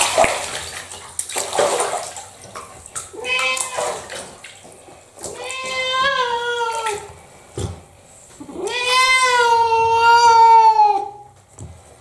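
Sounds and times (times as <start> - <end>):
bath water sloshing: 0.0 - 10.4
cat meowing: 3.2 - 4.0, 5.3 - 7.1, 8.4 - 11.3.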